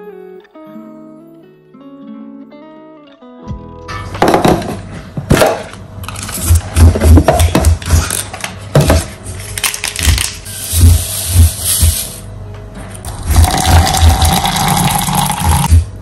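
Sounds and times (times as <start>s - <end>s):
foil sachet crinkling and tearing: 9.4s - 10.8s.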